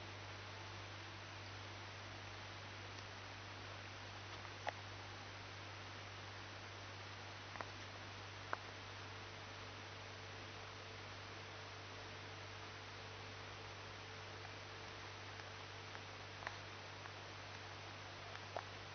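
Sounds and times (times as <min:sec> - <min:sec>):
low electrical hum: 0:00.0 - 0:18.9.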